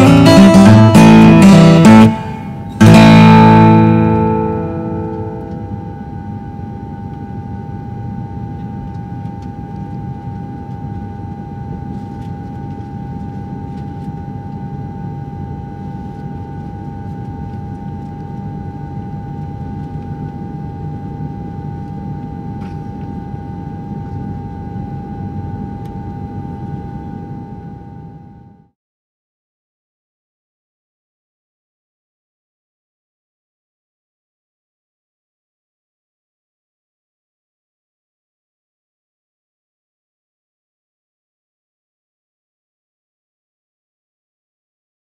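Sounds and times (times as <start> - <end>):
high whine: 0.0 - 28.6
mechanical hum: 0.0 - 28.7.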